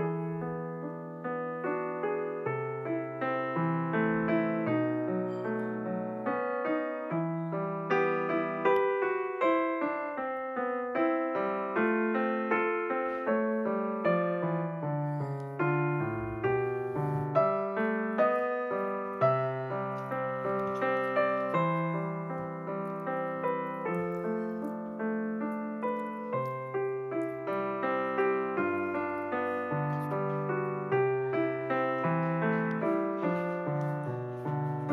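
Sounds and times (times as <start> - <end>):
gentle piano melody: 0.0 - 34.9.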